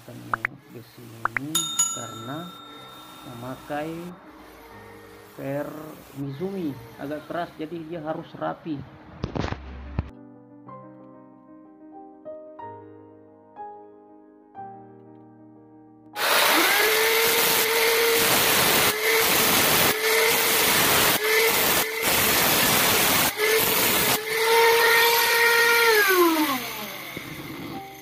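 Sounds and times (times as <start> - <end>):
soft piano music: 0.0 - 16.2
angle grinder grinding steel: 1.6 - 4.2, 16.2 - 28.0.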